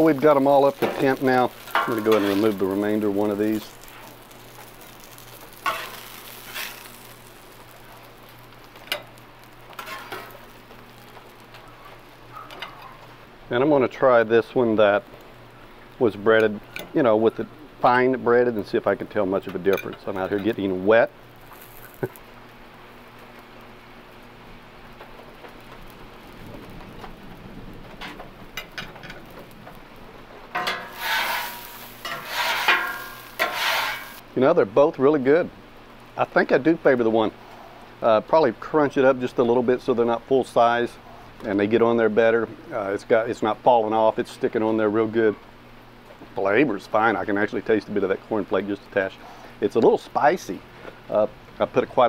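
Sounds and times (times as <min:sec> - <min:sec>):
spatula scraping griddle: 0:00.0 - 0:13.1, 0:30.6 - 0:34.2
steady rain: 0:00.0 - 0:19.3, 0:20.1 - 0:52.0
faint steady hiss: 0:00.0 - 0:52.0
metal spatula clinking: 0:30.6 - 0:34.1.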